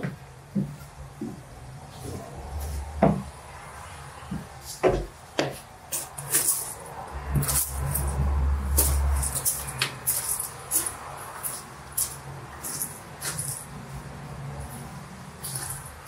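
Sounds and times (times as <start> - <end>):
footsteps crunching on gravel: 4.3 - 16.0.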